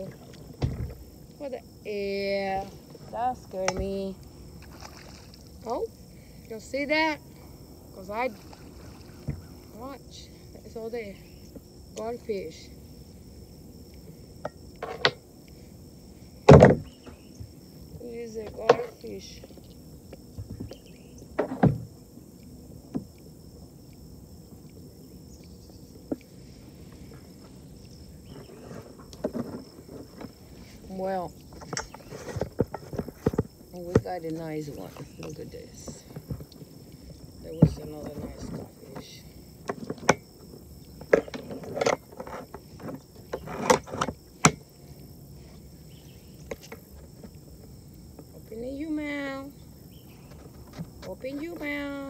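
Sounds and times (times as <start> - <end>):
knocks and rattles on plastic kayak: 0.0 - 1.1, 16.4 - 19.6, 20.3 - 22.0, 28.3 - 36.7, 37.4 - 40.2, 41.0 - 44.6
knocks against kayak hull: 16.4 - 17.0.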